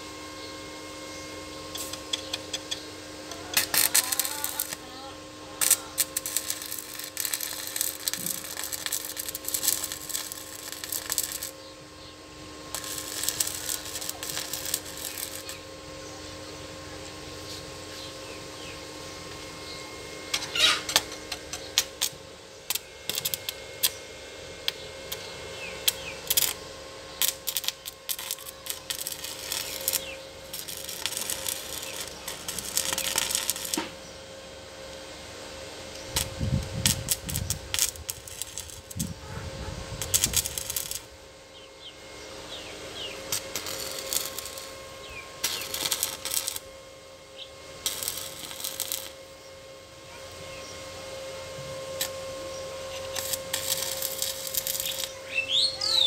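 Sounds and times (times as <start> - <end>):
welding arc crackling: 1.7 - 11.7, 12.6 - 16.0, 20.3 - 34.0, 35.9 - 41.3, 42.5 - 46.7, 47.4 - 49.3, 52.0 - 56.0.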